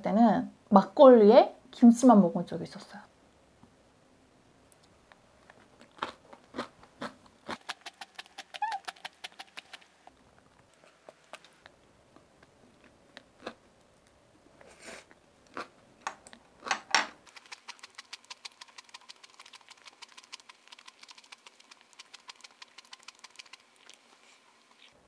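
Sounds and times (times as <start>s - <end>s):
crisp chewing clicks: 4.7s - 12.5s, 15.1s - 24.1s.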